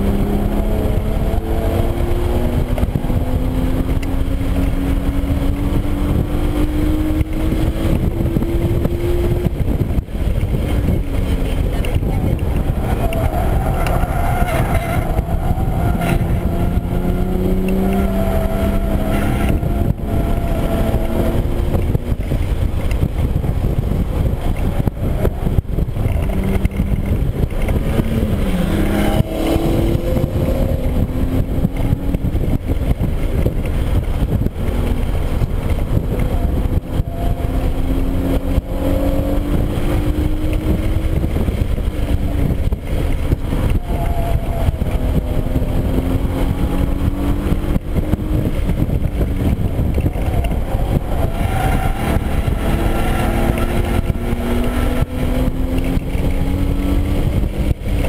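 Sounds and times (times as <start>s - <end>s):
car engine accelerating: 0.0s - 58.0s
road and tyre rumble: 0.0s - 58.0s.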